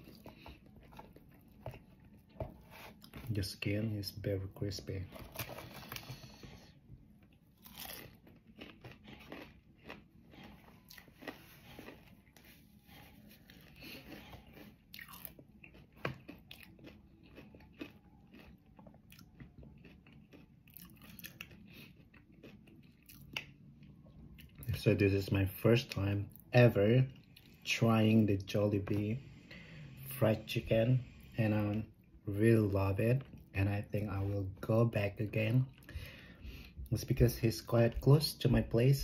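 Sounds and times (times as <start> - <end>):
person chewing crunchy food: 0.0 - 3.3, 5.1 - 24.8, 25.9 - 32.0.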